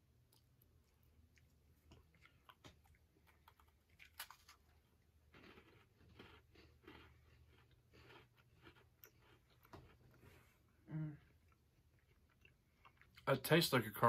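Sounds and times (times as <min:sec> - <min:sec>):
rhythmic chewing: 0:00.0 - 0:13.6
biscuit crunching: 0:00.2 - 0:10.5.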